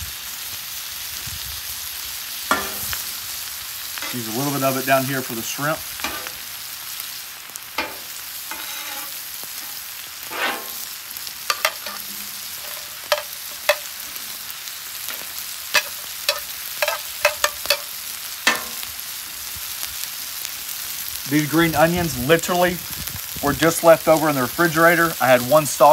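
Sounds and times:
steaks sizzling on a griddle: 0:00.0 - 0:25.9
metal spatula scraping on steel: 0:02.5 - 0:03.2, 0:04.0 - 0:05.0, 0:06.0 - 0:06.4, 0:07.8 - 0:14.2, 0:15.1 - 0:18.9.

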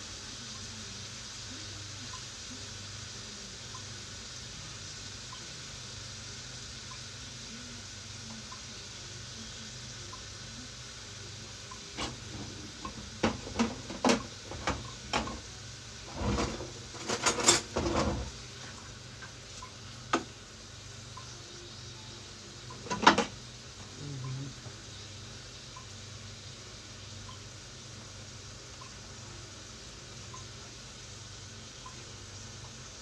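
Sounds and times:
low sizzle: 0:00.0 - 0:33.0
utensil knocking and scraping in pan: 0:11.9 - 0:19.4, 0:20.1 - 0:20.4, 0:22.7 - 0:23.4.

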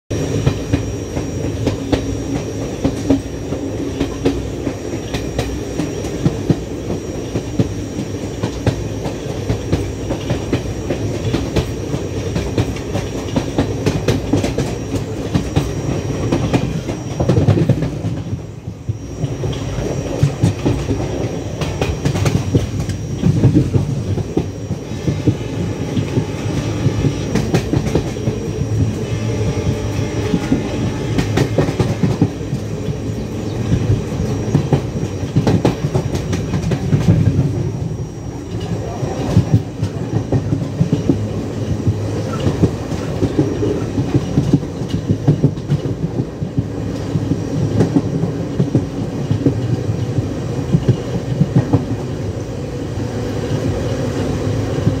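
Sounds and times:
train rumbling on track: 0:00.1 - 0:55.0.

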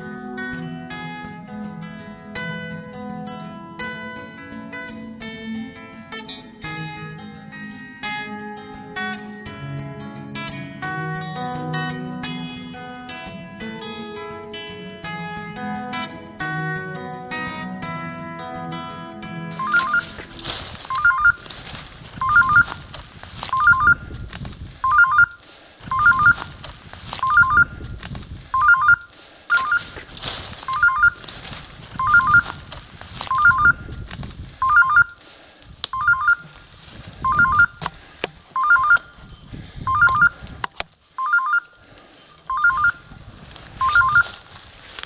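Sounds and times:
footsteps through dry leaves: 0:19.5 - 0:42.2, 0:43.0 - 0:45.0
high double beep: 0:19.6 - 0:20.2, 0:20.9 - 0:21.4, 0:22.2 - 0:22.7, 0:23.5 - 0:24.1, 0:24.8 - 0:26.4, 0:27.2 - 0:27.8, 0:28.6 - 0:30.0, 0:30.7 - 0:31.2, 0:32.0 - 0:32.4, 0:33.3 - 0:33.8, 0:34.6 - 0:35.2, 0:36.0 - 0:36.4, 0:37.2 - 0:37.8, 0:38.6 - 0:39.1, 0:39.9 - 0:40.4, 0:42.5 - 0:43.0, 0:43.8 - 0:44.3.

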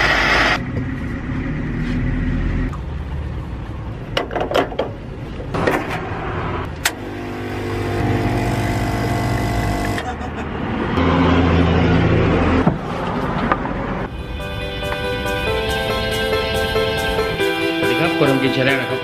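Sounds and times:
espresso machine pump humming: 0:07.0 - 0:10.0.

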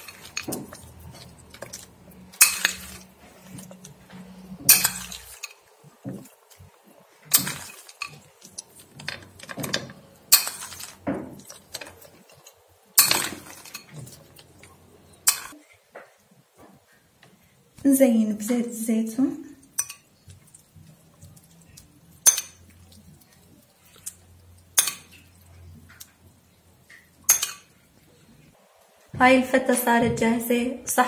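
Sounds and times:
metal spoon clinking on glass bowl: 0:19.8 - 0:20.1, 0:22.2 - 0:22.7, 0:27.3 - 0:27.7.

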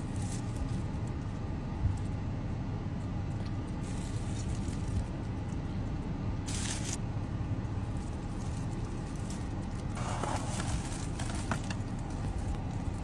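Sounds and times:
car cabin engine rumble: 0:00.0 - 0:13.0
plastic and foil crinkling: 0:08.0 - 0:13.0.

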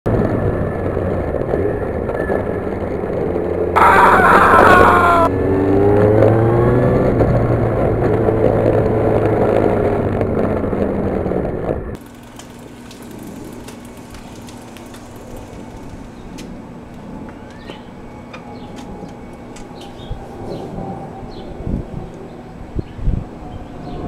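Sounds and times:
vehicle engine droning: 0:00.1 - 0:24.0.

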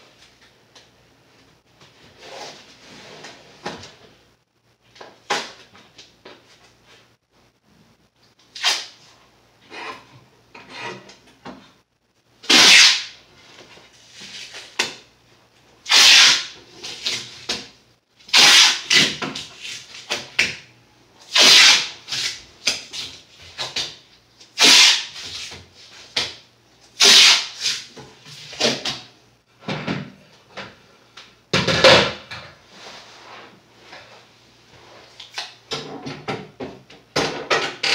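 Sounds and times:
masking tape ripping off roll: 0:08.5 - 0:09.0, 0:12.5 - 0:13.2, 0:15.9 - 0:17.3, 0:18.3 - 0:20.2, 0:21.3 - 0:23.9, 0:24.6 - 0:25.5, 0:27.0 - 0:27.9
tape rubbing on wood: 0:12.5 - 0:13.1, 0:15.9 - 0:17.2, 0:18.3 - 0:20.1, 0:21.3 - 0:23.1, 0:24.6 - 0:25.5, 0:27.0 - 0:27.9.

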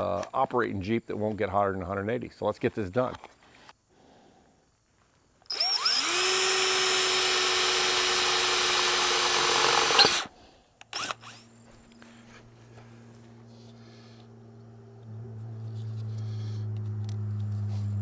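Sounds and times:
power drill boring through metal: 0:05.5 - 0:10.3, 0:10.9 - 0:11.4.

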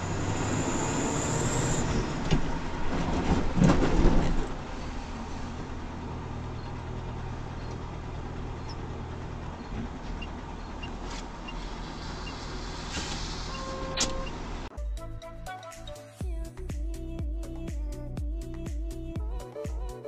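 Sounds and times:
tyre noise on wet road: 0:00.0 - 0:14.7
truck engine running: 0:04.3 - 0:14.7.

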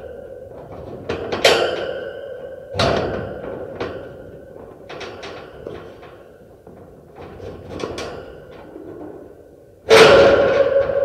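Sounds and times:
metal ringing: 0:00.0 - 0:06.4
metal cage rattling and clanking: 0:00.0 - 0:09.2.

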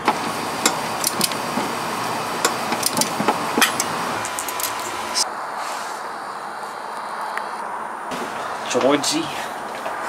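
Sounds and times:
metallic clicks and knocks of tools: 0:02.4 - 0:05.0.

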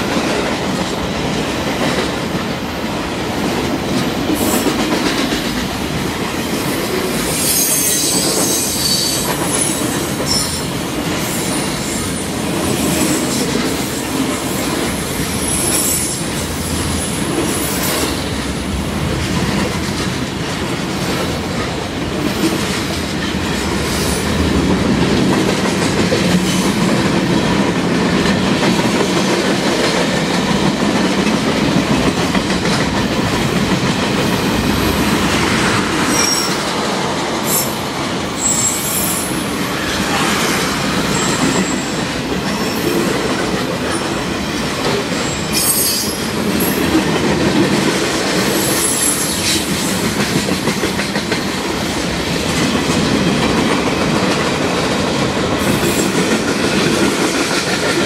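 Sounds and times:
train wheels rumbling on rail: 0:00.0 - 0:58.0
high wheel squeals: 0:38.4 - 0:39.3.

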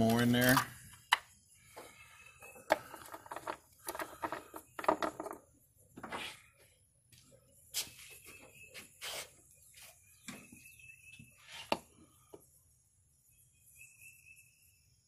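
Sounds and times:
light clinks and taps of parts: 0:00.0 - 0:05.4.

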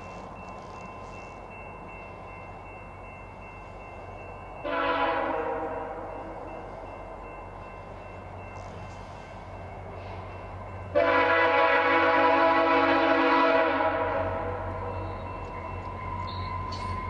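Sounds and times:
low rumble of approaching train: 0:00.0 - 0:17.0
locomotive horn blast: 0:04.6 - 0:06.1, 0:10.9 - 0:14.8.

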